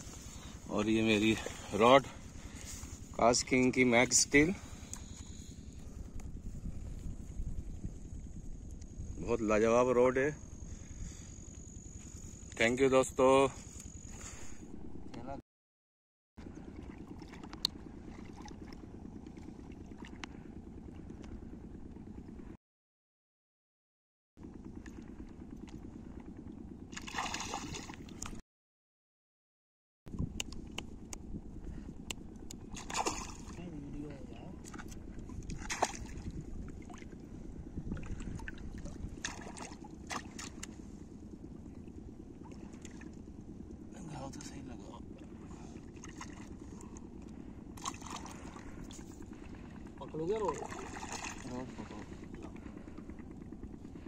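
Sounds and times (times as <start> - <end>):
low rumble: 0.0 - 12.5, 13.5 - 15.4
wind on microphone: 5.7 - 9.5, 34.9 - 39.5
fish splashing in water: 26.9 - 28.3, 32.7 - 33.6, 35.5 - 37.2, 38.0 - 40.7, 47.8 - 49.6, 50.4 - 51.6.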